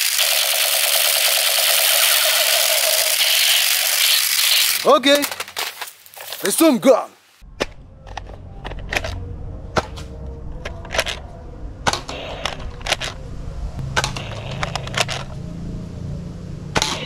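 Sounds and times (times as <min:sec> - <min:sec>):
low steady hum: 0:07.4 - 0:17.0
toy blaster shots cracking: 0:11.8 - 0:13.0, 0:14.0 - 0:15.3, 0:16.7 - 0:17.0.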